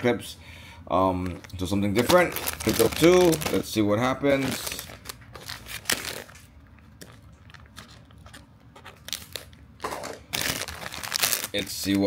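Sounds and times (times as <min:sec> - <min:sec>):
foil packet crinkling: 0:01.3 - 0:12.0.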